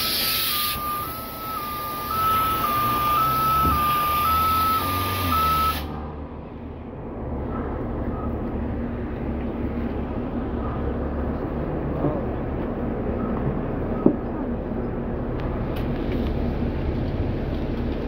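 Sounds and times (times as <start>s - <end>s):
bus diesel engine idling: 0.0s - 18.0s
faint short beeps: 0.5s - 5.8s.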